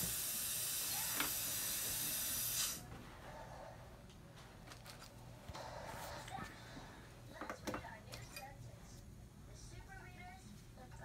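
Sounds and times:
dental air equipment hiss: 0.0s - 2.9s.

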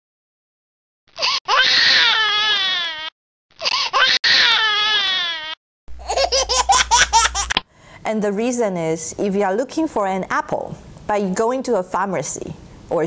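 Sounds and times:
choppy infant sounds: 1.1s - 7.6s
infant crying: 1.2s - 7.5s.

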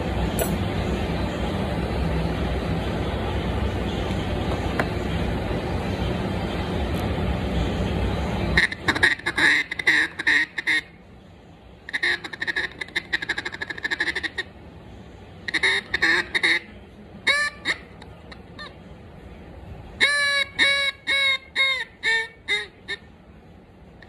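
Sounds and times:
duck call quacks: 8.6s - 10.9s, 11.9s - 14.5s, 15.5s - 16.7s, 17.3s - 18.0s, 20.0s - 23.1s.

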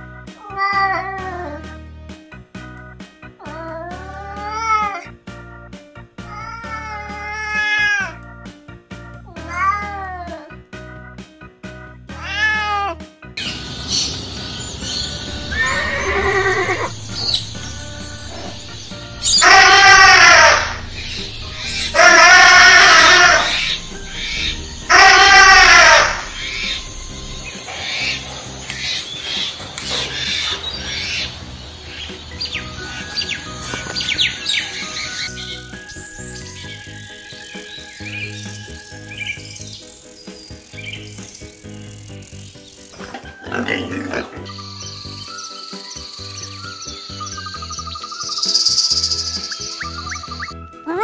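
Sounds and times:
background music with steady beat: 0.0s - 51.0s
cat meowing: 12.2s - 13.0s, 19.4s - 20.8s, 22.0s - 23.6s, 24.9s - 26.2s
bird chirps: 13.4s - 43.1s, 44.4s - 50.6s.

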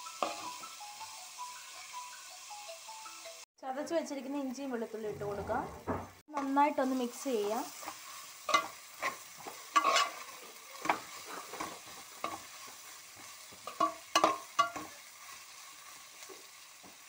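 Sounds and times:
faint oil sizzle: 0.0s - 3.4s, 6.3s - 17.0s
spoon scraping and stirring in pan: 0.1s - 0.7s, 7.7s - 17.0s.

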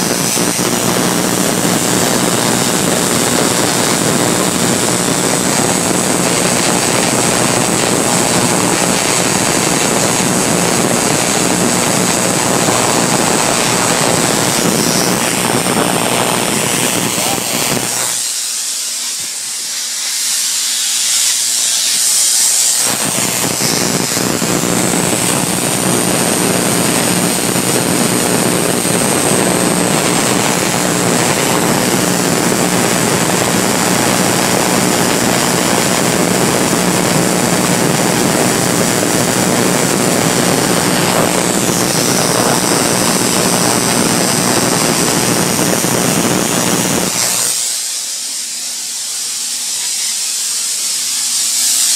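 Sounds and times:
low buzz: 0.0s - 51.2s
corona discharge hissing: 0.0s - 51.9s.

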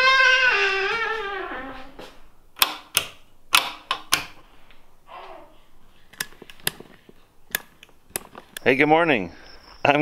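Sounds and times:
light switches clicking: 2.6s - 4.4s, 7.5s - 8.7s.

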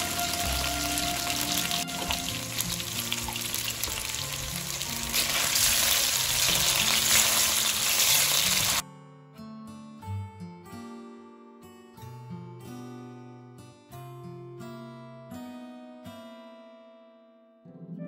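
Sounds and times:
chicken sizzling in hot oil: 0.0s - 8.8s
soft guitar music: 0.0s - 18.0s.

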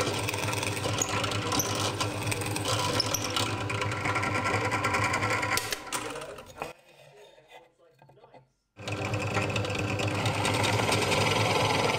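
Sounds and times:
drill bit boring into wood: 0.0s - 5.6s, 8.8s - 11.9s
drill press motor hum: 8.8s - 11.9s.

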